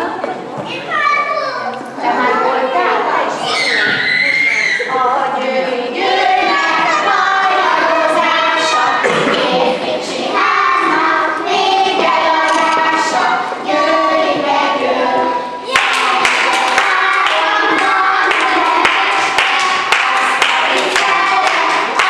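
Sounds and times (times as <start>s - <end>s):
children singing in unison: 4.9s - 22.0s.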